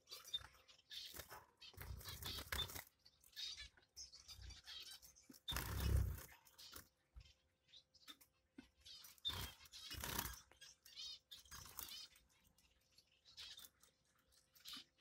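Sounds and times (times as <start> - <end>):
finches chirping: 0.0 - 15.0
scratching and rustling in cage: 0.1 - 3.0.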